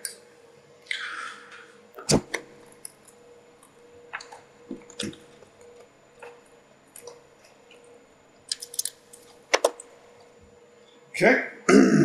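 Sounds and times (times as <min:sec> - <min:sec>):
faint hum: 0:00.0 - 0:12.0
tools clicking on circuit board: 0:08.5 - 0:09.9.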